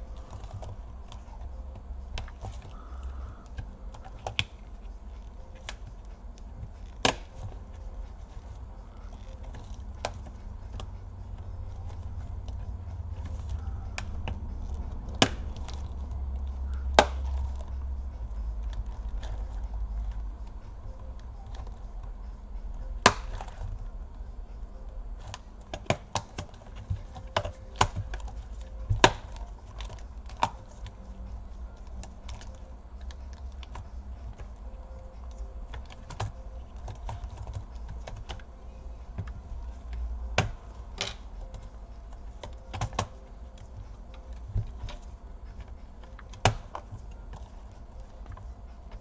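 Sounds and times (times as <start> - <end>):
low hum: 0.0 - 49.0
keyboard clicks and taps: 31.8 - 49.0.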